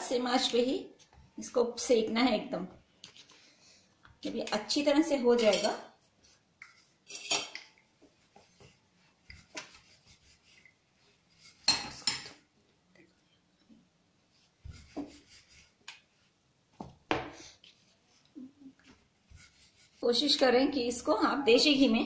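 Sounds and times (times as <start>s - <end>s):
metal utensils clinking on pots: 5.3s - 5.9s, 7.1s - 7.8s, 11.7s - 12.4s.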